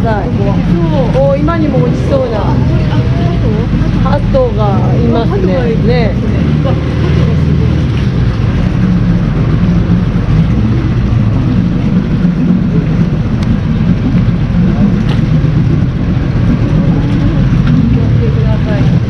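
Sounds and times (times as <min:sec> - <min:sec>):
boat engine running: 0:00.0 - 0:19.0
water and wind noise: 0:00.0 - 0:19.0.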